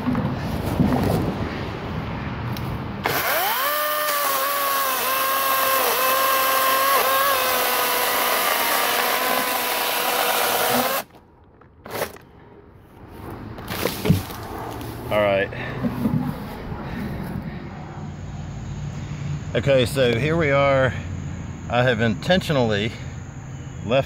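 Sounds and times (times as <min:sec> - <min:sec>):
electric chainsaw whining: 0:03.0 - 0:11.2.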